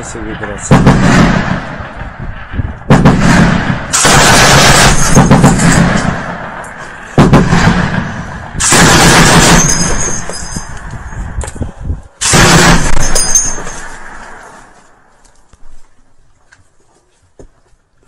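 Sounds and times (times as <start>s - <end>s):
machine gun bursts: 3.9s - 6.1s, 8.6s - 10.3s, 12.2s - 14.0s.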